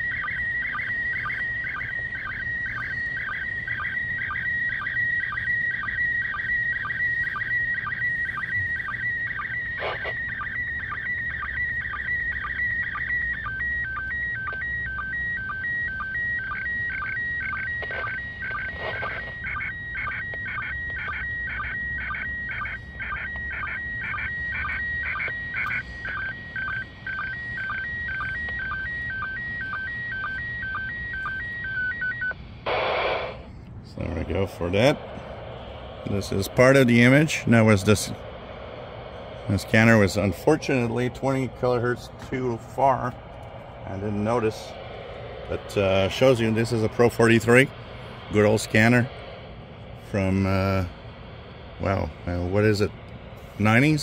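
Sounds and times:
high warbling signal tone: 0.0 - 54.0.

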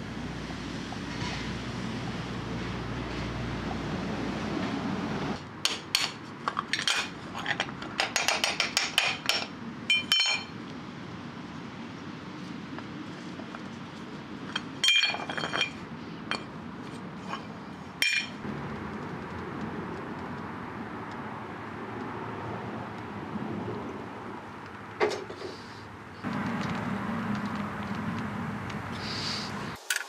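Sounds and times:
metal weights clinking from mould: 5.9 - 10.5, 14.5 - 16.5, 17.2 - 18.4.

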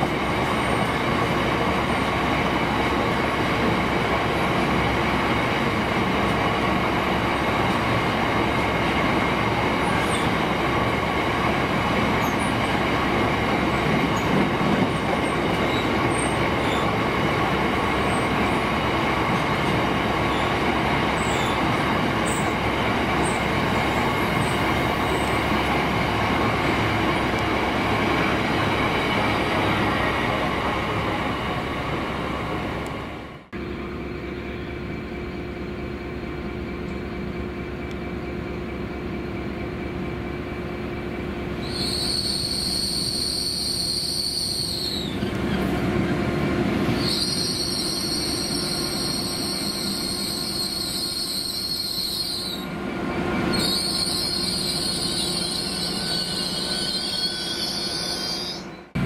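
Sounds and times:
freight train rolling past: 0.0 - 59.0
train rumbling: 0.0 - 59.0
wheel and brake squeal: 14.2 - 17.0, 21.2 - 22.6, 41.6 - 45.7, 46.9 - 52.7, 53.5 - 58.9.

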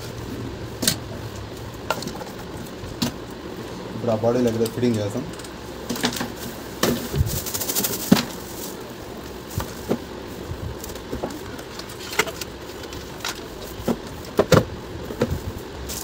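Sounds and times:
plastic wrapping crinkling: 5.9 - 10.0
clicks and knocks of handling: 10.8 - 16.0.

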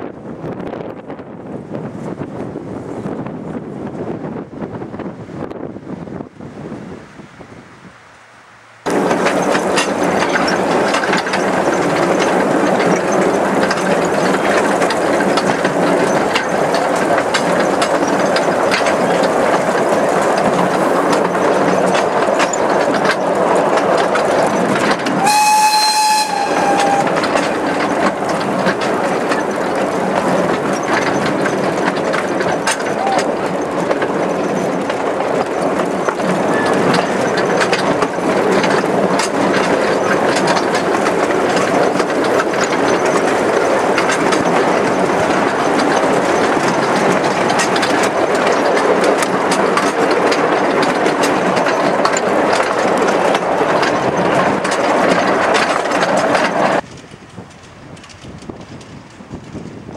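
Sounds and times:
train wheels clattering: 8.6 - 59.9
steam whistle: 25.2 - 27.3.

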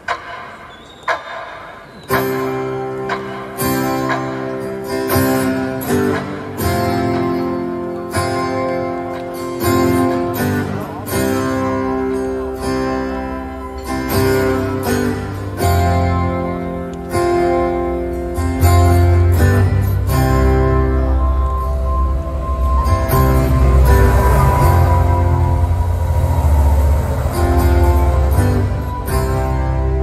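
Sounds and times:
acoustic guitar strumming chords: 2.1 - 30.0
deep low note: 21.0 - 30.0.

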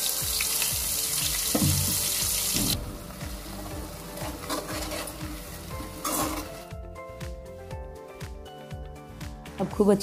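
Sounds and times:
light sizzle: 0.0 - 6.7
soft background music: 0.0 - 10.0
metal spoon scraping paste: 4.2 - 5.2, 5.8 - 6.6.

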